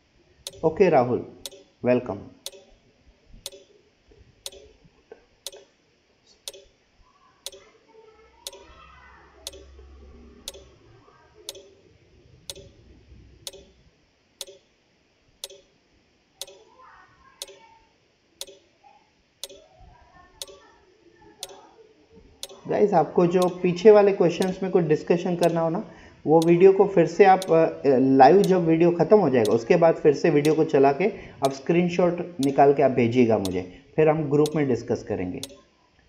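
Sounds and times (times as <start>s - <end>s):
clock ticking: 0.4s - 0.8s, 1.4s - 1.7s, 2.4s - 2.8s, 3.4s - 3.7s, 4.4s - 4.8s, 5.5s - 5.7s, 6.5s - 6.7s, 8.4s - 8.7s, 9.4s - 9.8s, 10.4s - 10.8s, 11.5s - 11.8s, 12.5s - 12.8s, 13.4s - 13.8s, 14.4s - 14.7s, 15.4s - 15.7s, 16.4s - 16.7s, 17.4s - 17.6s, 18.4s - 18.6s, 19.4s - 19.6s, 20.4s - 20.6s, 21.4s - 21.6s, 22.4s - 22.7s, 23.4s - 23.7s, 24.4s - 24.6s, 25.4s - 25.7s, 26.4s - 26.6s, 27.4s - 27.8s, 28.4s - 28.7s, 29.4s - 29.7s, 30.4s - 30.7s, 31.4s - 31.6s, 32.4s - 32.7s, 33.4s - 33.6s, 34.4s - 34.6s, 35.4s - 35.6s.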